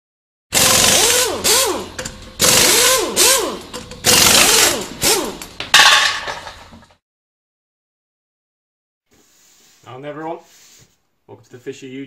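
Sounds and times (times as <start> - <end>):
power tool bursts with whine: 0.5 - 5.6.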